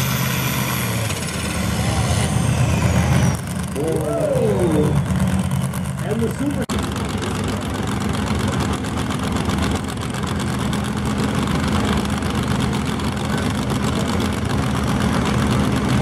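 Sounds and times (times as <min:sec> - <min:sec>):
tractor engine running steadily: 0:00.0 - 0:16.0.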